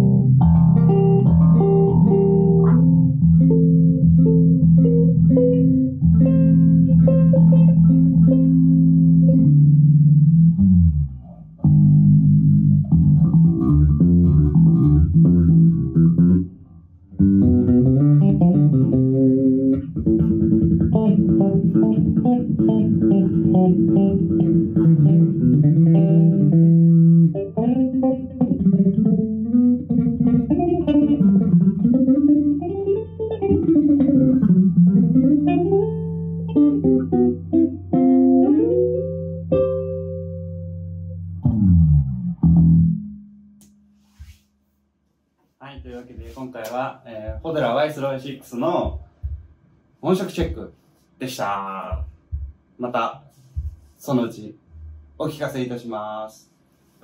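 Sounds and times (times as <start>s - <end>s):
electric bass playing: 0.0s - 44.4s, 54.7s - 55.4s.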